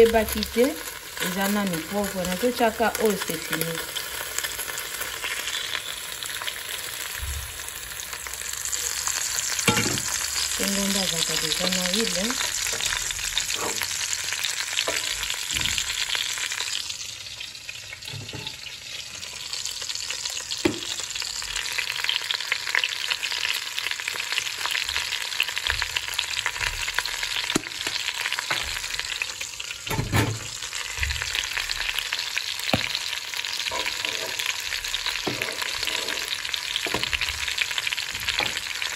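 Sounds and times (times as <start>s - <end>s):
hot oil sizzling: 0.0s - 38.9s
pans and utensils knocking: 9.7s - 10.2s, 29.9s - 30.6s.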